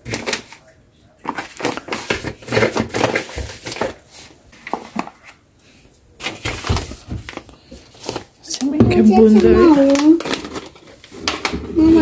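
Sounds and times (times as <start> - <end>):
packets crinkling: 0.0 - 5.4, 9.2 - 12.0.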